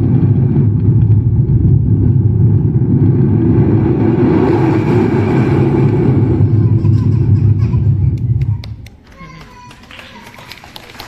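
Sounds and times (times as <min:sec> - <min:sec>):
mouth-made rocket rumble: 0:00.0 - 0:09.0.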